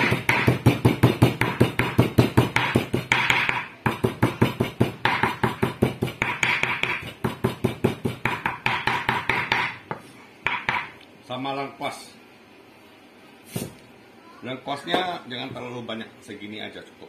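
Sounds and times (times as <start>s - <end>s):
cleaver chopping on wooden block: 0.0s - 10.9s.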